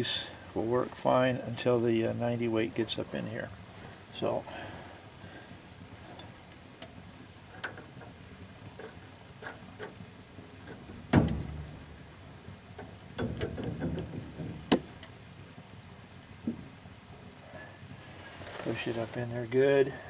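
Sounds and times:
metallic clicks and knocks: 6.1 - 8.2, 8.8 - 10.0, 10.6 - 11.9, 12.7 - 15.2.

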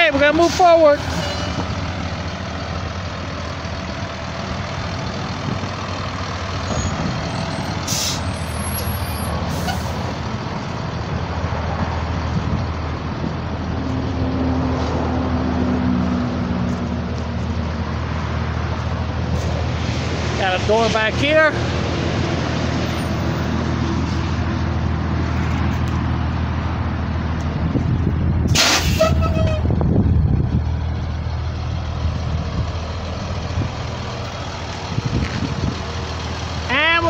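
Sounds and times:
bus diesel engine running: 0.0 - 37.0
air brake hisses: 7.9 - 8.4, 28.5 - 29.2.

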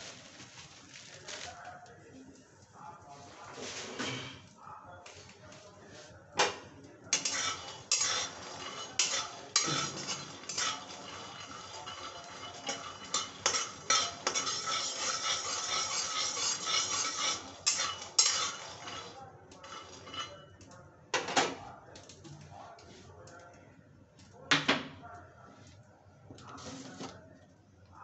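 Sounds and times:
metal spatula scraping and clanking pan: 3.5 - 4.4, 7.1 - 20.6.

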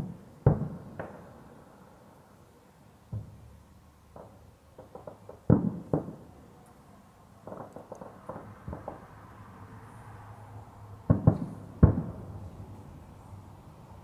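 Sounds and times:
distant fireworks booms and pops: 0.0 - 1.4, 3.1 - 3.5, 4.1 - 6.4, 7.4 - 9.2, 11.1 - 12.4.

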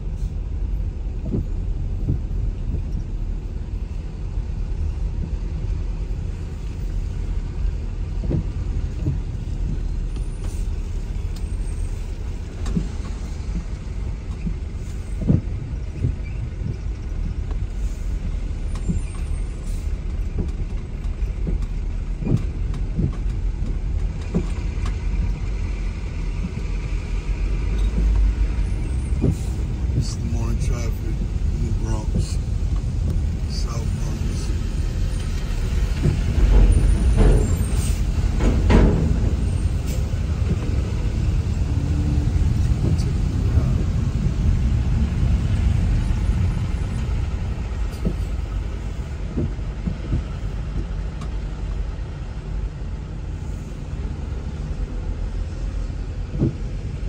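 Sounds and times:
car rumble on wet road: 0.0 - 57.0
short knocks: 35.2 - 40.9.

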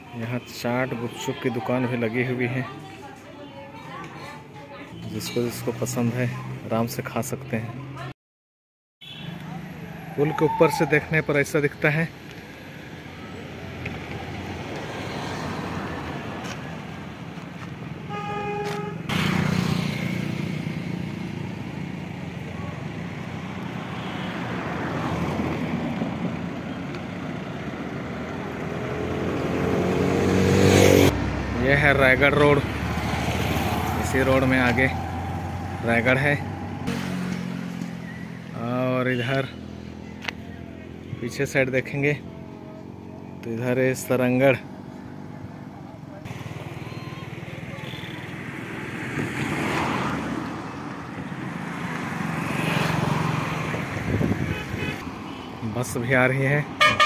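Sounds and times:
vehicles rushing past: 0.0 - 8.1, 9.0 - 57.0
road traffic noise: 0.0 - 8.2, 9.0 - 57.0
bus engine: 12.2 - 38.6.

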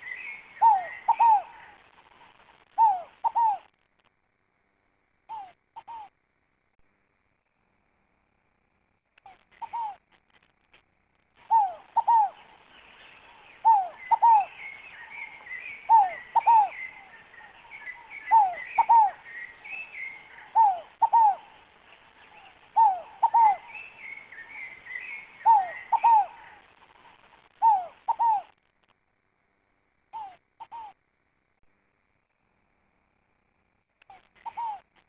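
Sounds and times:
dove double cooing: 0.0 - 3.7, 9.3 - 10.0, 11.4 - 28.6, 30.1 - 31.0, 34.1 - 34.9
small birds twittering: 0.0 - 3.7, 11.4 - 28.6, 30.1 - 31.0, 34.0 - 35.0.

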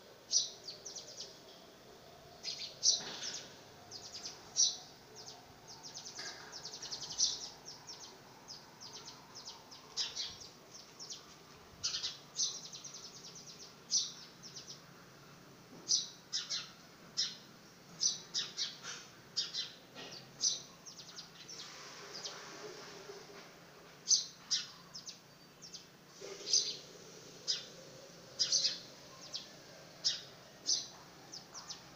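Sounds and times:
sparrows chirping: 0.0 - 15.2, 15.8 - 22.9, 24.0 - 31.9.

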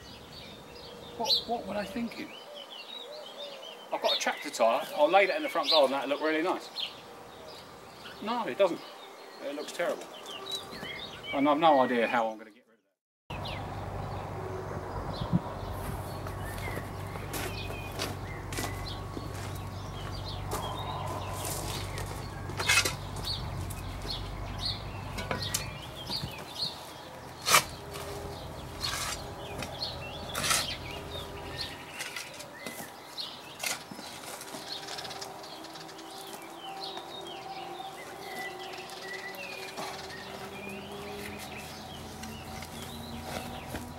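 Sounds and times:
small birds chirping: 0.0 - 43.9
low hum: 13.3 - 26.3.

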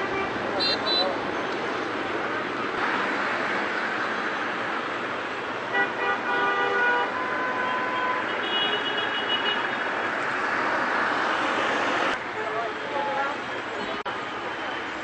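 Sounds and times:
vehicle horns: 0.0 - 1.2, 5.7 - 9.9
road traffic: 0.0 - 15.0.

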